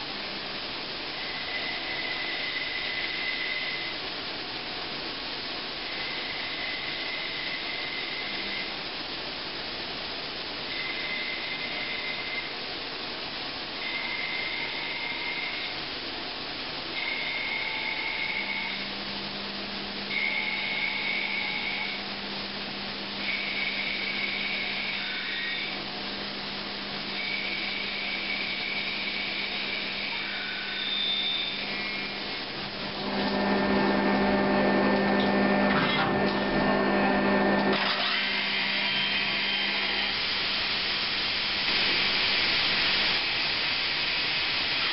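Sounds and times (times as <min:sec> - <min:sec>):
spindle hum: 0:00.0 - 0:04.1, 0:16.9 - 0:44.9
high cutting whine: 0:00.0 - 0:09.2, 0:10.0 - 0:12.9, 0:13.5 - 0:44.9
coolant hiss: 0:00.0 - 0:44.9.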